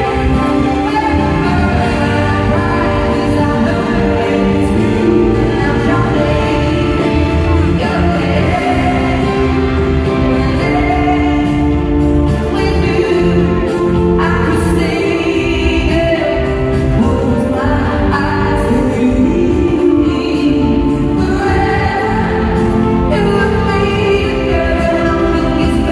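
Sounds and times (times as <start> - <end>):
audience singing along: 0.0 - 13.8
full band playing: 0.0 - 25.9
woman singing pop ballad: 0.0 - 25.9.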